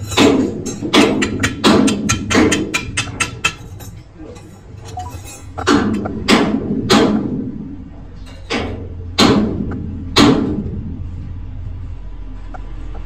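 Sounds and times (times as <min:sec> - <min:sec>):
sharp metal clanks: 0:00.0 - 0:07.5, 0:08.2 - 0:10.8
low steady hum: 0:00.0 - 0:13.0.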